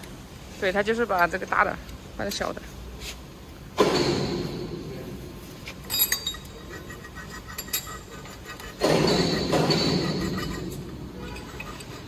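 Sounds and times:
steel parts clinking and knocking: 0:05.8 - 0:06.6, 0:08.8 - 0:12.0.

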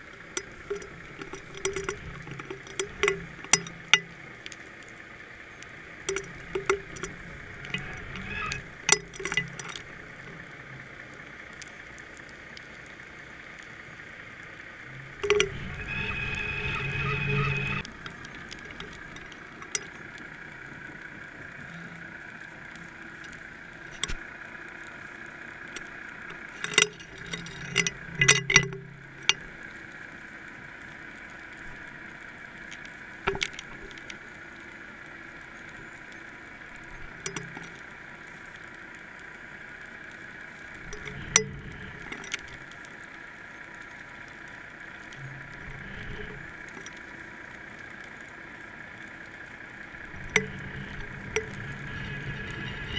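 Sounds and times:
underwater hum: 0:00.0 - 0:52.9
sharp knocks and clicks: 0:00.4 - 0:04.1, 0:06.1 - 0:09.9, 0:15.2 - 0:19.9, 0:25.8 - 0:29.4, 0:33.3 - 0:34.0, 0:50.2 - 0:52.9.

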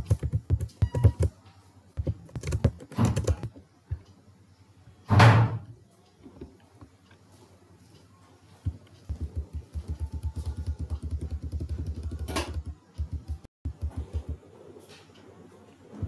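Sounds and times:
keyboard keys tapping: 0:00.0 - 0:01.4, 0:02.0 - 0:04.1, 0:08.6 - 0:14.5.

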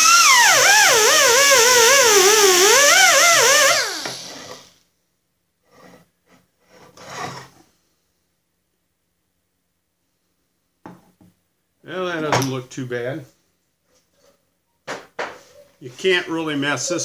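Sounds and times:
die grinder wire brush whining: 0:00.0 - 0:04.7
air hiss: 0:00.0 - 0:04.8.

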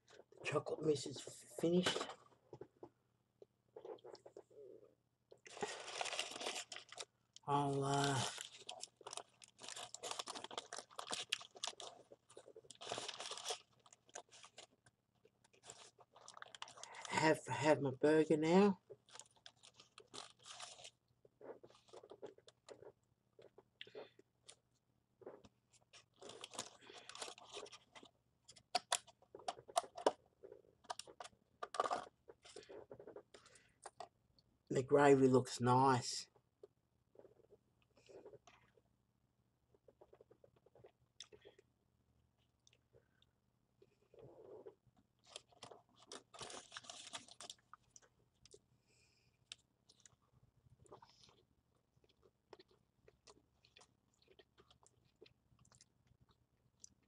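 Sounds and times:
person chewing and crunching food: 0:02.0 - 0:17.1, 0:18.8 - 0:34.2, 0:36.6 - 0:38.9, 0:39.7 - 0:57.0
packaging crackling: 0:05.4 - 0:17.2, 0:18.9 - 0:22.9, 0:25.8 - 0:30.2, 0:45.2 - 0:48.1.

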